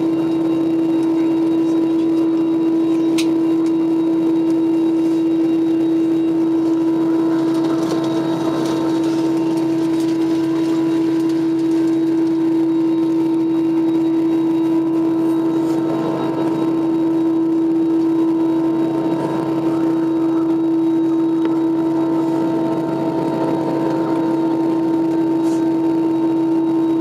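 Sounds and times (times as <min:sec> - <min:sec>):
loud steady hum: 0:00.0 - 0:27.0.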